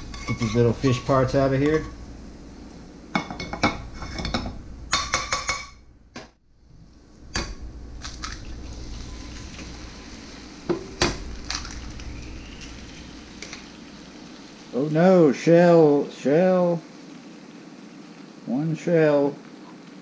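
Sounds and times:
metal spatula scraping pan: 0.0 - 1.1
oil sizzling: 0.0 - 20.0
eggs cracking: 7.3 - 9.8, 10.7 - 14.6.

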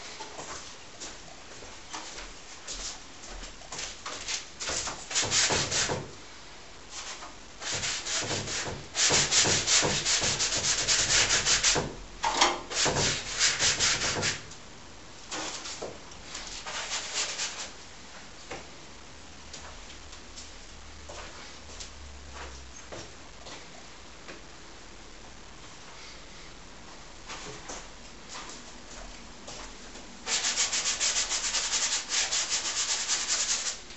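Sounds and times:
paintbrush scrubbing on canvas: 6.9 - 11.8, 12.7 - 14.4, 15.3 - 17.7, 30.3 - 33.8.

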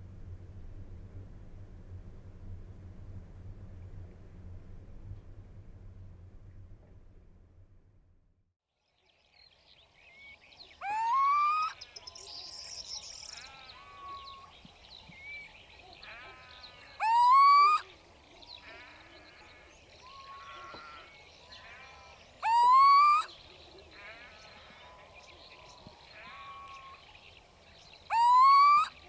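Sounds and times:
owl short calls: 10.8 - 11.8, 16.0 - 17.9, 18.6 - 23.3, 28.1 - 29.0
owl hooting: 10.8 - 11.9, 13.3 - 14.5, 15.3 - 18.0, 22.4 - 23.4, 28.1 - 29.0.

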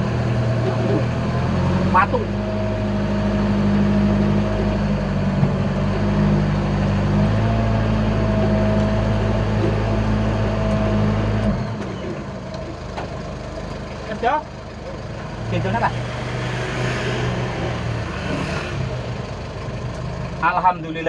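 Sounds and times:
pickup engine running under load: 0.0 - 21.0.

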